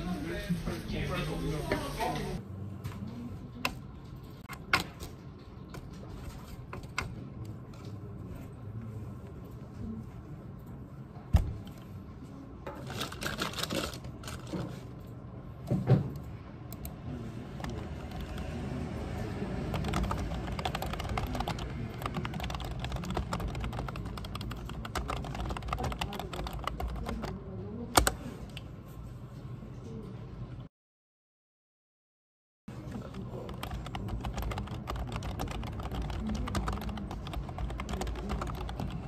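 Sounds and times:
computer keyboard typing: 0:17.6 - 0:28.2, 0:32.9 - 0:39.0.

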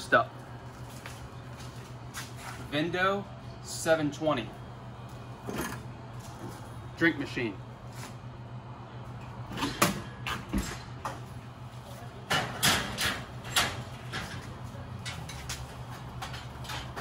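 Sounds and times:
steady low hum: 0:00.0 - 0:17.0
metal clanks and rattles: 0:12.2 - 0:17.0.

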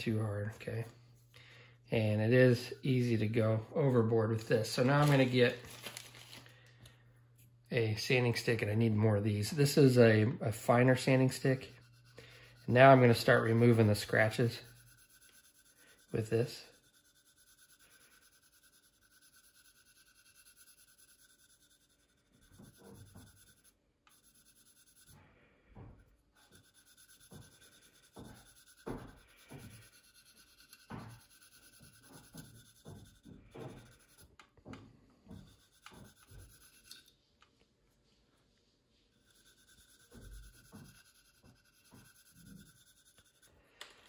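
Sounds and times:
sanding stick rubbing plastic: 0:10.6 - 0:25.2, 0:26.4 - 0:34.4, 0:35.3 - 0:37.0, 0:39.2 - 0:43.6.

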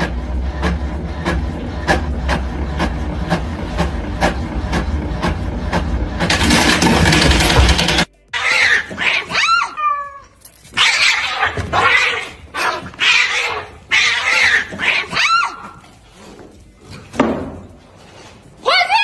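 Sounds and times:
cat caterwauling and screeching: 0:08.4 - 0:15.8.

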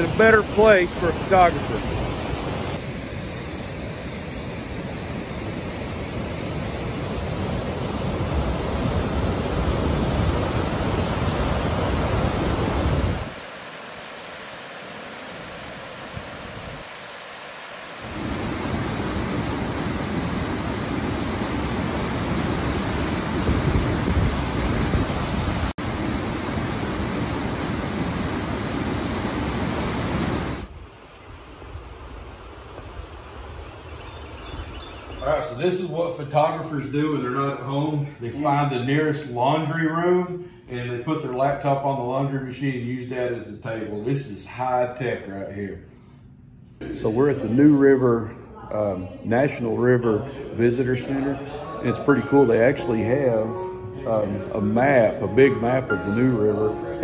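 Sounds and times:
waterfall roaring: 0:00.0 - 0:30.7.

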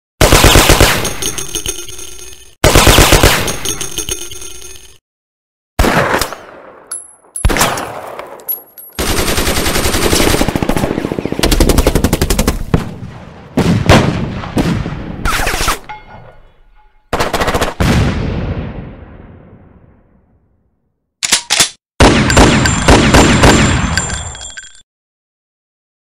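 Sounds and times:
heavy gunshots echoing: 0:00.2 - 0:01.2, 0:02.6 - 0:03.7, 0:05.8 - 0:06.9, 0:09.0 - 0:15.6, 0:17.1 - 0:20.0, 0:22.0 - 0:24.0
machine-gun fire: 0:00.2 - 0:01.4, 0:02.6 - 0:04.0, 0:09.0 - 0:12.9, 0:22.0 - 0:24.0.

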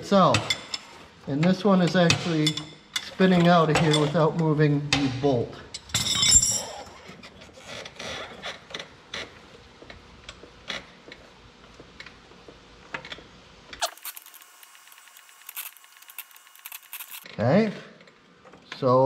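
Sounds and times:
wrenches clinking on metal: 0:05.8 - 0:07.3.

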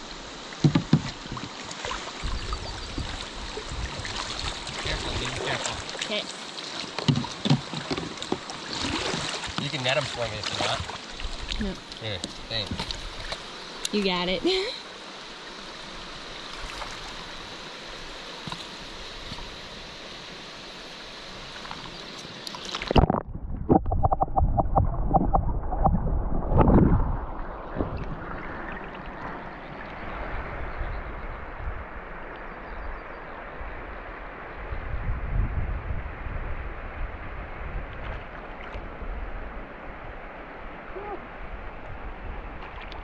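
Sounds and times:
underwater splashing and gurgling: 0:00.0 - 0:12.0, 0:20.6 - 0:31.0
river current rushing: 0:00.0 - 0:23.2.

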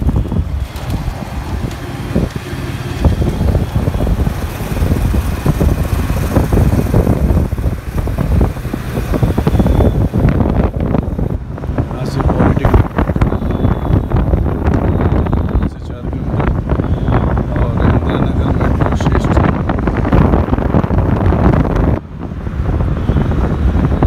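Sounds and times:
motorbike engine: 0:00.0 - 0:11.4
road traffic: 0:00.0 - 0:24.0
wind buffeting microphone: 0:00.0 - 0:24.0.

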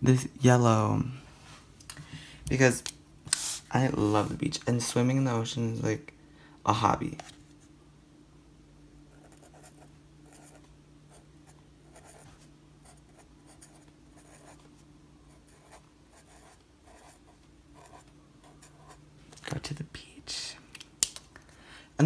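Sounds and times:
steady low hum: 0:00.0 - 0:22.0
marker scratching on paper: 0:11.9 - 0:14.6, 0:15.3 - 0:19.0.

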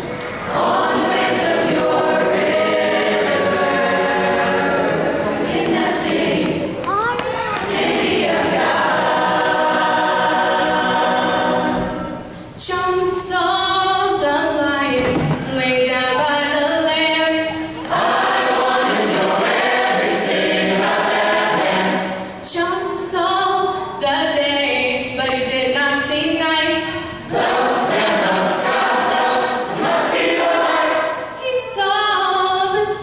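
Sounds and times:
choir singing sustained chords: 0:00.0 - 0:06.8, 0:07.7 - 0:14.8, 0:15.6 - 0:24.8, 0:26.3 - 0:33.0
singers breathing: 0:12.2 - 0:12.6.

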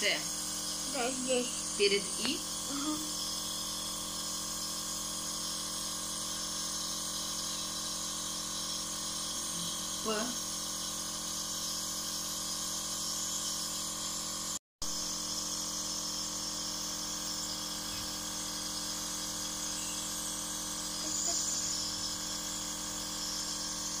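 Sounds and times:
nebulizer motor hum: 0:00.0 - 0:24.0.

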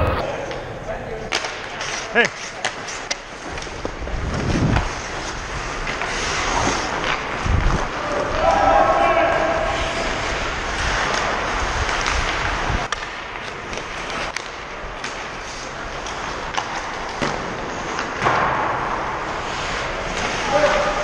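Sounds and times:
hockey stick and puck clicks: 0:01.3 - 0:07.8, 0:10.8 - 0:21.0
skate blades scraping on ice: 0:01.4 - 0:21.0.

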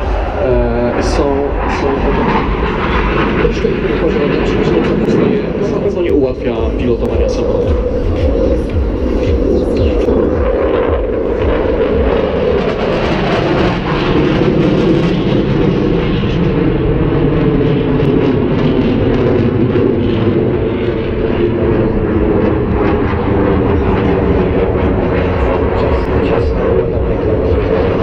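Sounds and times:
fighter jet engines rumbling: 0:00.0 - 0:28.0.

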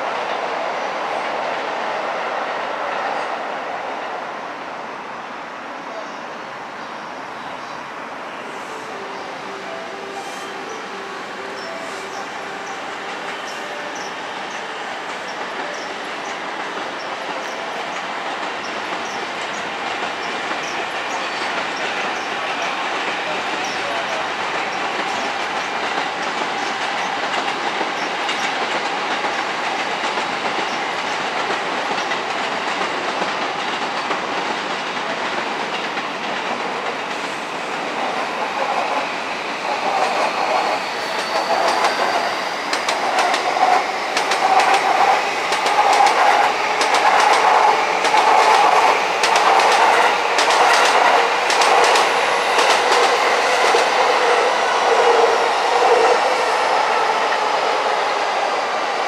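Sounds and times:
electric train whine: 0:00.0 - 0:59.0
train wheels clattering over joints: 0:11.5 - 0:56.2.

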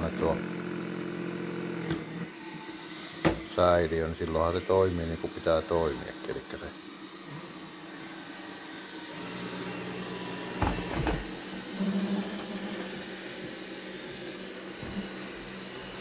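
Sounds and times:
robot vacuum motor hum: 0:00.0 - 0:16.0.

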